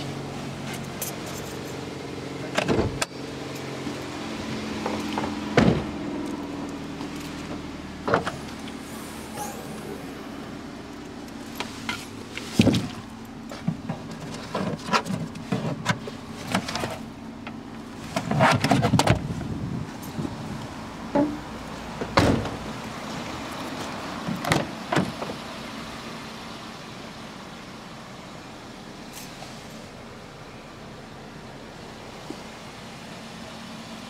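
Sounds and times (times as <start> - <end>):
tailgate shutting thump: 2.5 - 3.1, 4.8 - 6.0, 22.0 - 22.6
knocks and clicks of car doors: 4.8 - 6.0, 22.0 - 22.6.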